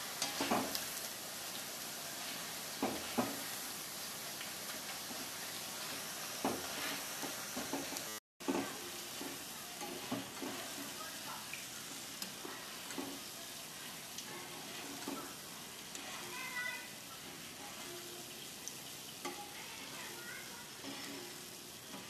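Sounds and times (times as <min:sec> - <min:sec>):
food sizzling in hot oil: 0:00.0 - 0:22.0
metal utensils stirring in pan: 0:00.0 - 0:22.0.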